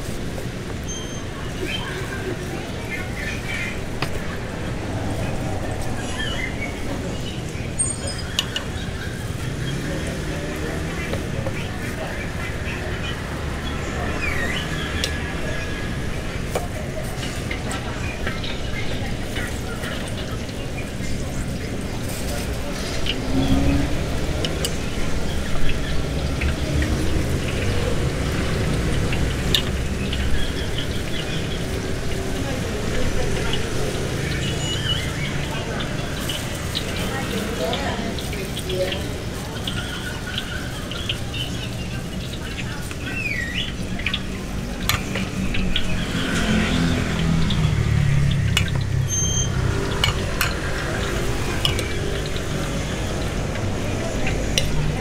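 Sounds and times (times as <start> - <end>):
oil crackling in a deep fryer: 6.1 - 55.0.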